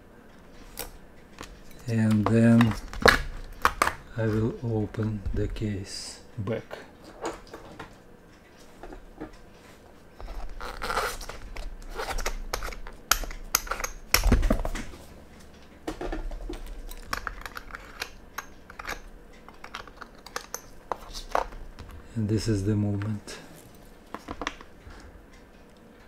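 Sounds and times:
metal tool scraping and clicking: 10.2s - 14.3s, 16.8s - 21.6s.

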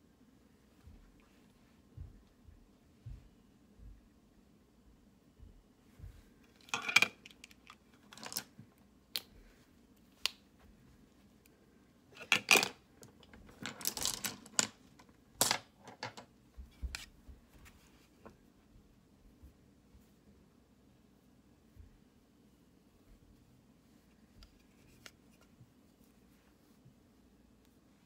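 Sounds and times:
small objects clicking and rustling: 6.6s - 8.5s, 12.2s - 16.3s.

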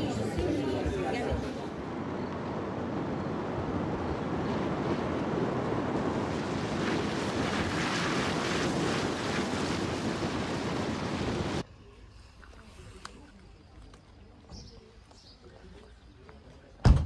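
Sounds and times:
wind buffeting microphone: 0.0s - 11.6s.

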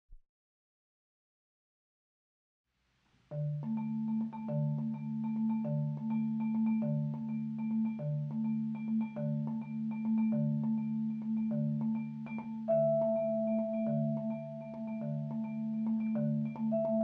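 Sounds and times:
marimba and vibraphone playing: 3.3s - 17.0s.

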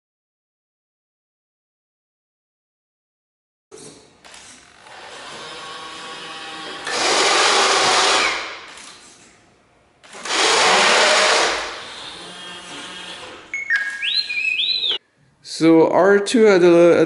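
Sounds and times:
motors whirring: 10.0s - 15.0s
robot beeps and electronic whistles: 13.5s - 15.0s.

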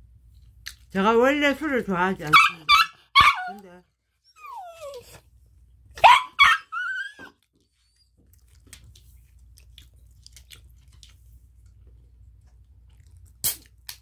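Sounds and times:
small dog yipping: 2.3s - 3.6s, 4.3s - 5.2s, 6.0s - 7.4s
dog whining: 4.2s - 5.2s, 6.0s - 8.2s.

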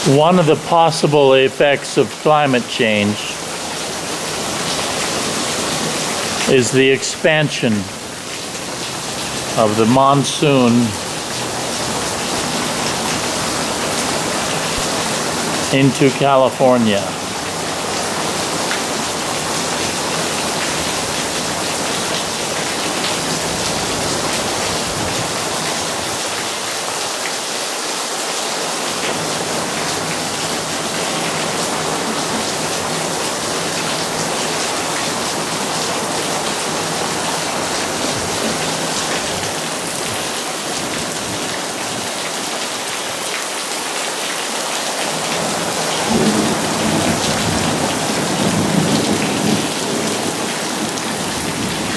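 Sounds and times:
steady rain hiss: 0.0s - 51.9s.

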